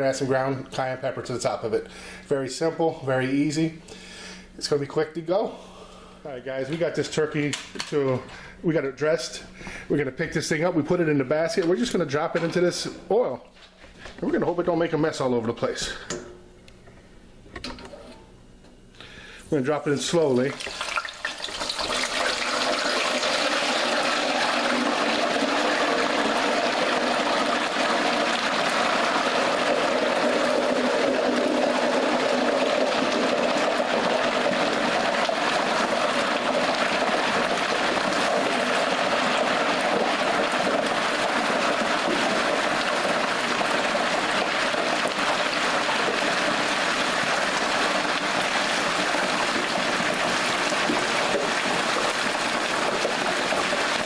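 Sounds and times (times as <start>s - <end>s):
turkey frying in hot oil: 20.1s - 54.0s.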